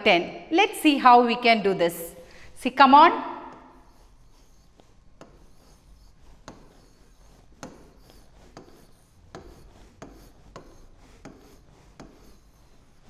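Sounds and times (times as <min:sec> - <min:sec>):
pen tapping screen: 0:03.5 - 0:12.4
stylus scratching on glass: 0:03.5 - 0:13.0.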